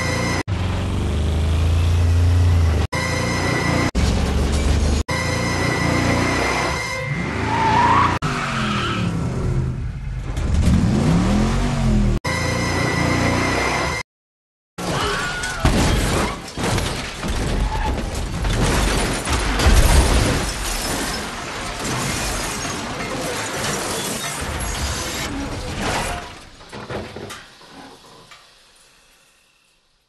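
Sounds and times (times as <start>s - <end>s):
car crash with crunching metal: 14.8s - 27.5s
glass shattering: 14.9s - 26.4s.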